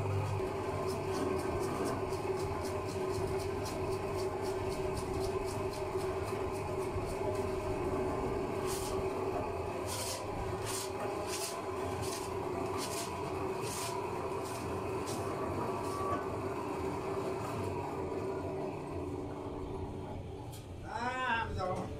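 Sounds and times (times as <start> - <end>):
dough mixer motor humming: 0.0 - 20.3
rhythmic swishing of dough hook: 0.2 - 7.8, 9.8 - 16.0.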